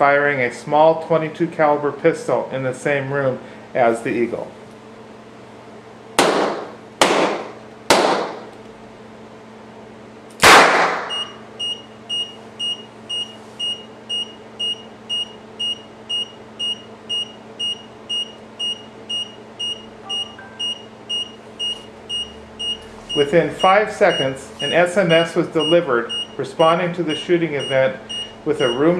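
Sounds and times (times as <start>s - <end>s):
pistol shot: 10.4s - 11.1s
electronic alarm beeping: 11.1s - 28.9s.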